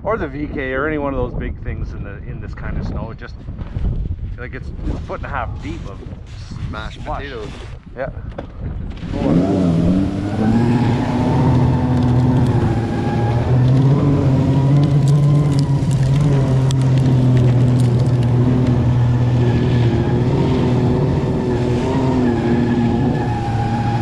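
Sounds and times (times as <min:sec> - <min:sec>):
snowmobile driving through slush: 0:08.9 - 0:24.0.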